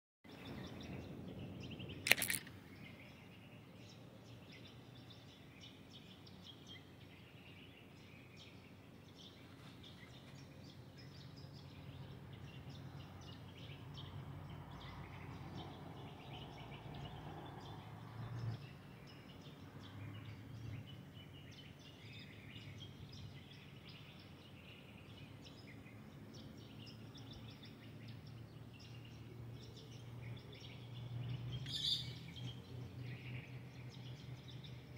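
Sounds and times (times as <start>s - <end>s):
birds chirping: 0.3s - 34.9s
sharp click: 2.0s - 2.6s.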